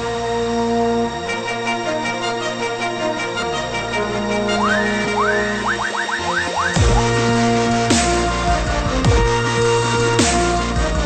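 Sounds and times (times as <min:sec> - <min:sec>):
gliding bass line: 0:00.2 - 0:11.0
electronic synth music: 0:00.6 - 0:10.3.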